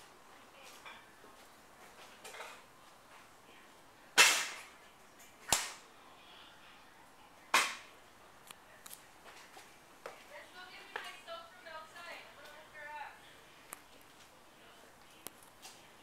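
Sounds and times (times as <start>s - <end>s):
sharp bangs: 4.2s - 4.7s.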